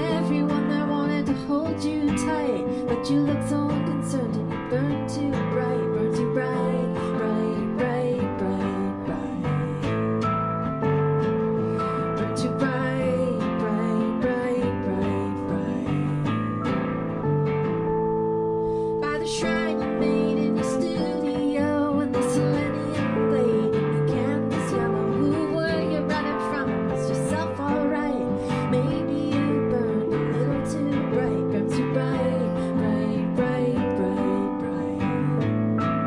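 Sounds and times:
acoustic guitar picked and strummed: 0:00.0 - 0:36.0
keyboard holding chords: 0:00.0 - 0:36.0.

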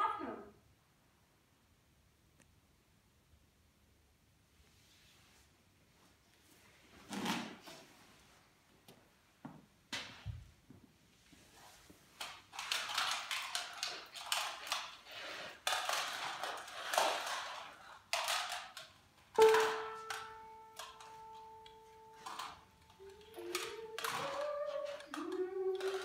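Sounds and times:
objects rustling and clattering: 0:09.9 - 0:26.0.

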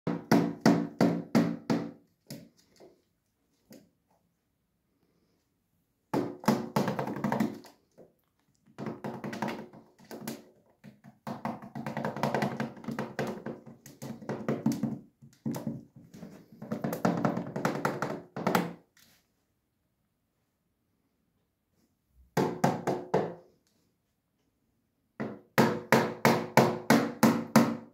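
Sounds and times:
fingers tapping plastic lid: 0:06.2 - 0:07.7, 0:08.8 - 0:15.9.

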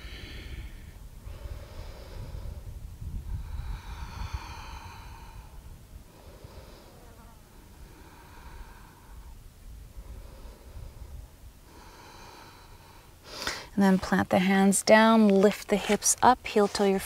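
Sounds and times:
wind rumble on microphone: 0:00.0 - 0:13.0
woman breathing deeply: 0:00.0 - 0:13.8.

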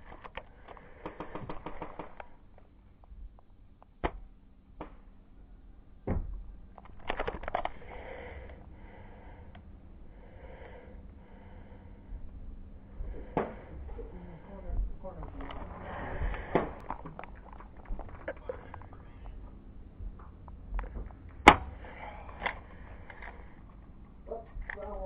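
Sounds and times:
airsoft gun rapid clicks: 0:00.3 - 0:02.3
airsoft gun sharp cracks: 0:21.4 - 0:21.7.

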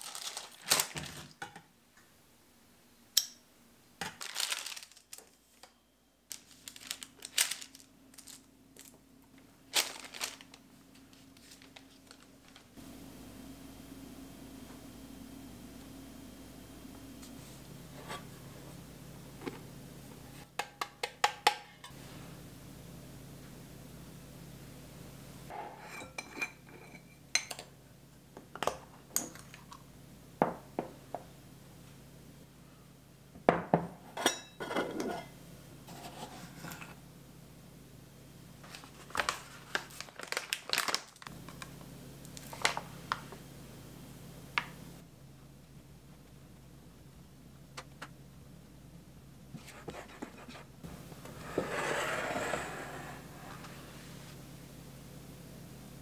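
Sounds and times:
plastic pouch crinkling: 0:00.0 - 0:01.4, 0:04.1 - 0:05.4, 0:06.3 - 0:08.9, 0:09.7 - 0:12.8, 0:38.7 - 0:41.3.

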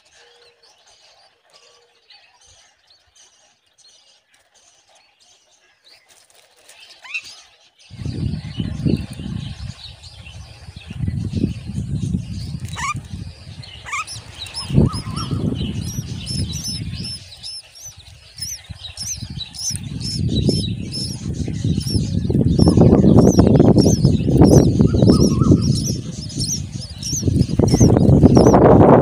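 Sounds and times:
rustling and wing-flapping: 0:05.9 - 0:29.0
nestlings begging chirps: 0:07.9 - 0:29.0.

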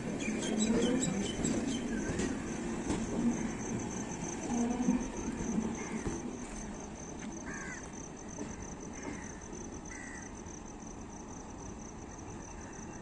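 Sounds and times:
crows cawing: 0:07.4 - 0:07.9, 0:09.0 - 0:10.3.

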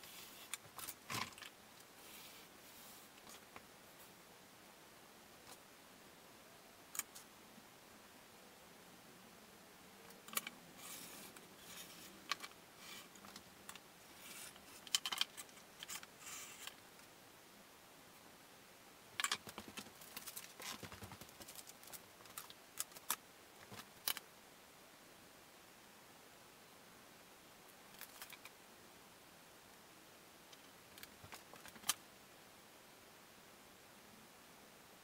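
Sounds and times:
paper rustling: 0:19.2 - 0:24.2.

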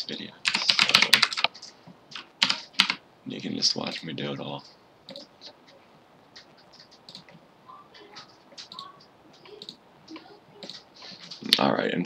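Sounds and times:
computer keyboard and mouse clicks: 0:00.5 - 0:03.0, 0:06.3 - 0:07.4, 0:08.0 - 0:11.6.

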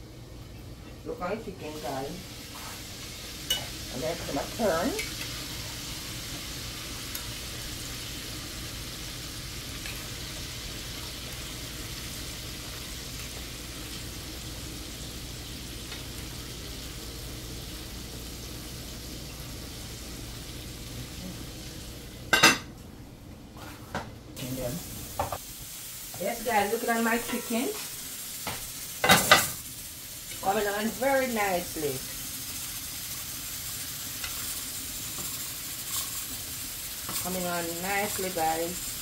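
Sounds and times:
chicken sizzling in oil: 0:01.7 - 0:22.3, 0:24.4 - 0:39.0.

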